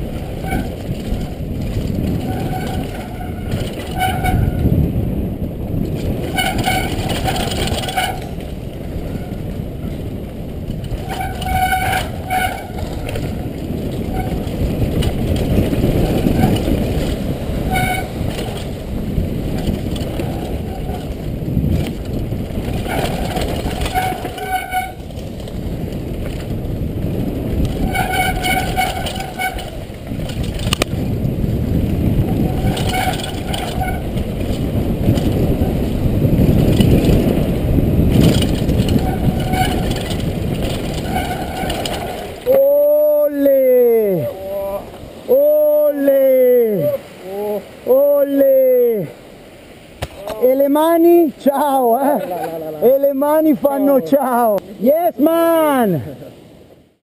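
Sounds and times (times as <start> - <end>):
mountain bike rumbling and rattling: 0.0 - 47.8
wind buffeting camera: 0.0 - 57.0.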